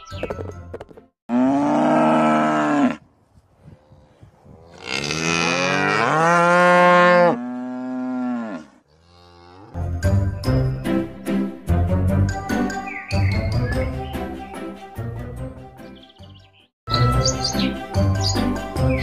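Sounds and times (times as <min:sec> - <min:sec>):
cow mooing: 0:01.3 - 0:03.1, 0:04.0 - 0:09.8.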